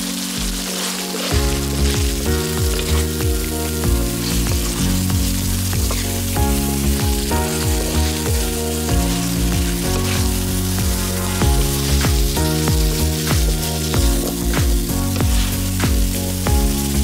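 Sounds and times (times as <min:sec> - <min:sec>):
background music with steady beat: 0:00.0 - 0:17.0
curry sizzling in a pan: 0:00.0 - 0:17.0.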